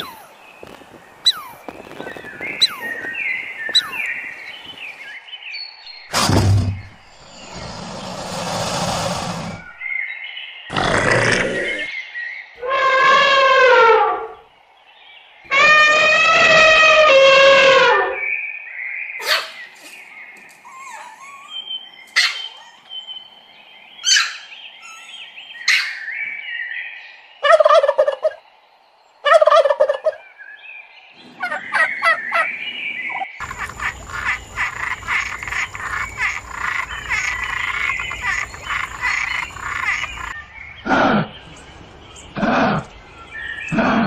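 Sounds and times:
fowl gobbling calls: 33.4s - 40.4s.

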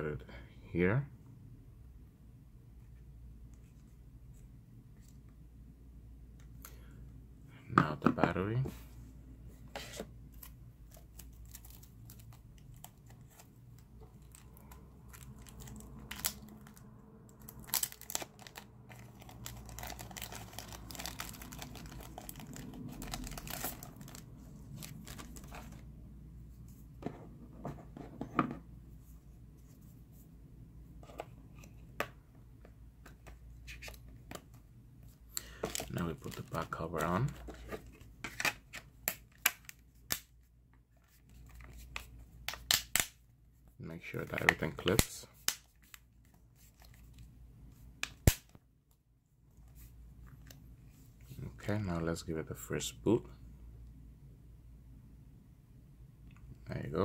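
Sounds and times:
plastic wrapping crinkling and tearing: 14.2s - 25.8s, 35.6s - 37.0s.

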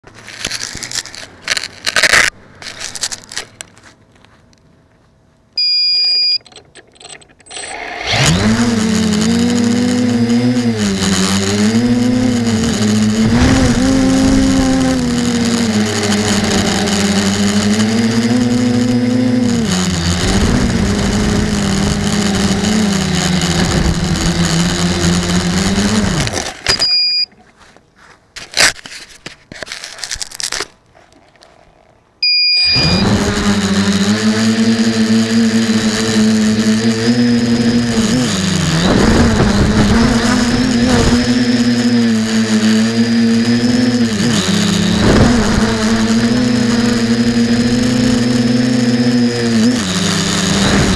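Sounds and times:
short electronic beep: 5.6s - 6.6s, 26.7s - 27.3s, 32.2s - 33.2s
drone motors whining: 5.6s - 27.3s, 32.2s - 50.9s.

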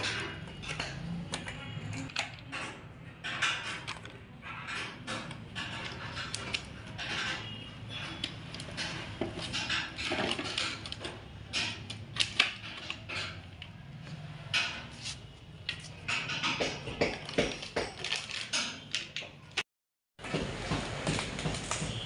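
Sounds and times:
metal parts clinking and knocking: 0.0s - 14.8s.

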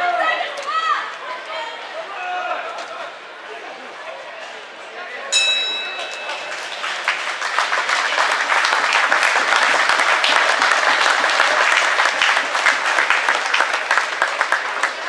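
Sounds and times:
audience applauding: 6.0s - 15.0s.

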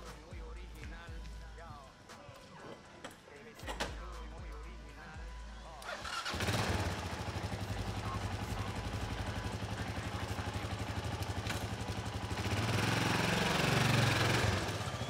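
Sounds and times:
motor engine running: 6.1s - 15.0s.

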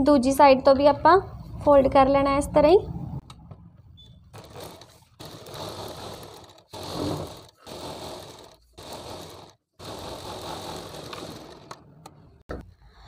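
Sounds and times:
sewing machine stitching: 4.3s - 12.4s.

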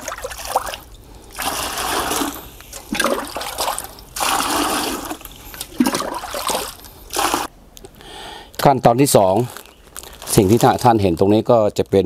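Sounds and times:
water pouring into plastic bucket: 0.0s - 7.5s.

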